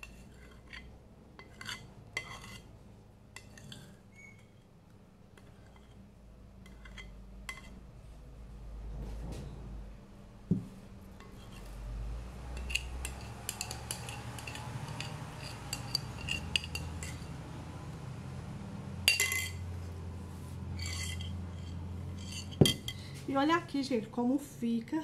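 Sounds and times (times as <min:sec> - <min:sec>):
batter scraped into pan: 0:00.0 - 0:02.7, 0:03.4 - 0:04.6, 0:05.4 - 0:06.0, 0:06.6 - 0:07.8, 0:11.2 - 0:11.8
utensils clattering: 0:12.6 - 0:17.4, 0:19.1 - 0:19.6
utensils clinking on metal pan: 0:12.6 - 0:17.4, 0:19.0 - 0:19.7, 0:20.8 - 0:23.1.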